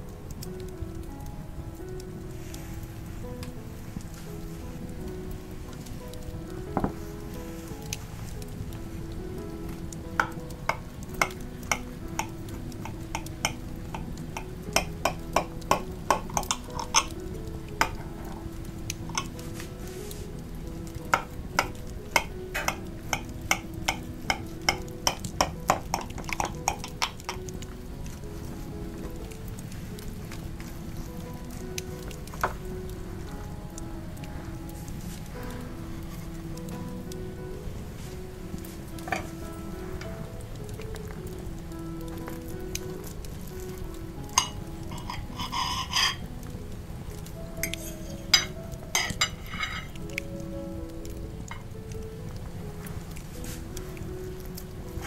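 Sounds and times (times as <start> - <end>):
soft background music: 0.0 - 55.0
cutlery clinking on plate: 44.4 - 46.2, 47.6 - 50.0
fork clinking on glass dish: 44.4 - 46.2.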